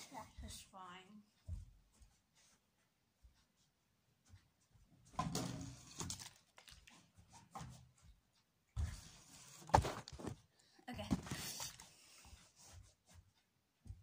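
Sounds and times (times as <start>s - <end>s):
rustling and scuffling: 6.3s - 13.5s.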